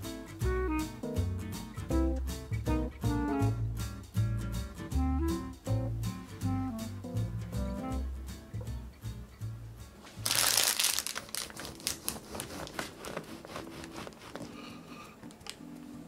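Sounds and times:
crust crunching and crackling: 0:10.1 - 0:15.6
bread knife sawing through crust: 0:12.4 - 0:14.7.

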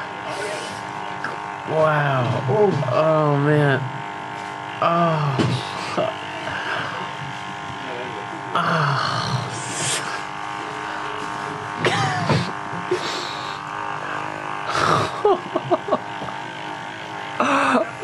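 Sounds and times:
electric massager humming: 0:00.0 - 0:18.0
person laughing and groaning: 0:04.8 - 0:06.8, 0:08.6 - 0:10.2, 0:11.8 - 0:16.4, 0:17.4 - 0:18.0.

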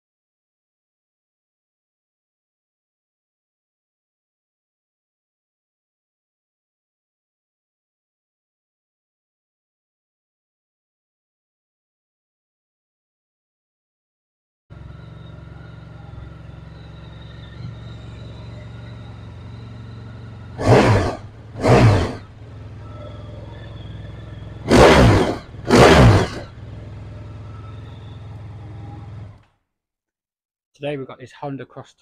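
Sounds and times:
motorcycle engine idling and revving: 0:14.7 - 0:29.6.

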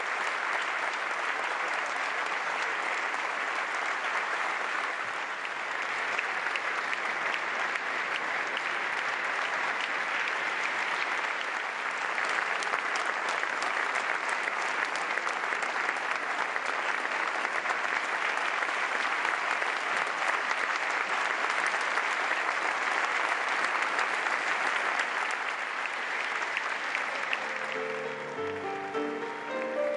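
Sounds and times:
audience applauding: 0:00.0 - 0:29.9.

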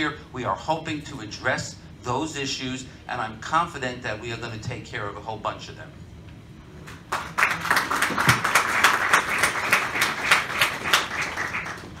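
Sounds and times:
audience applauding: 0:07.1 - 0:12.0.

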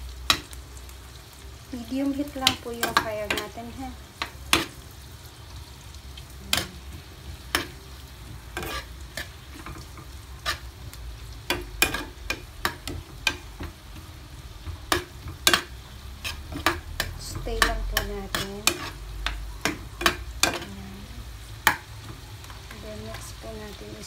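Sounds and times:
onion frying in butter: 0:00.0 - 0:24.0
metal ladle scraping pan: 0:08.6 - 0:09.8, 0:14.9 - 0:20.7.

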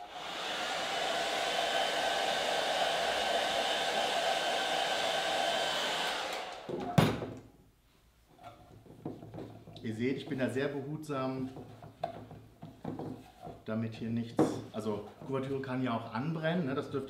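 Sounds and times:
hair dryer running: 0:00.0 - 0:07.2.

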